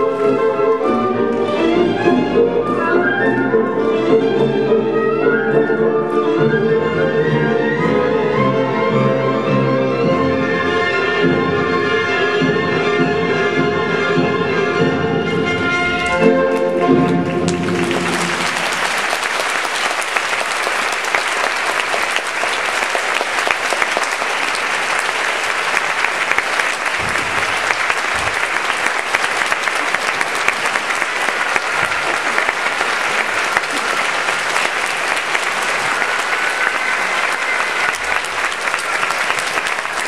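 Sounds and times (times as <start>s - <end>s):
audience applauding: 16.0s - 40.0s.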